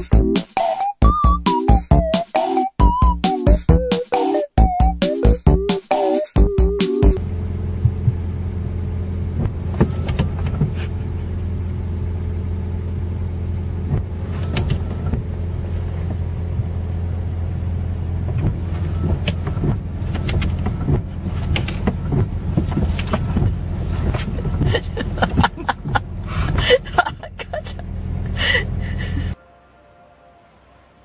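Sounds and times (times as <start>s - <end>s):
car engine idling: 7.0s - 29.4s
windshield wipers sweeping: 7.6s - 28.4s.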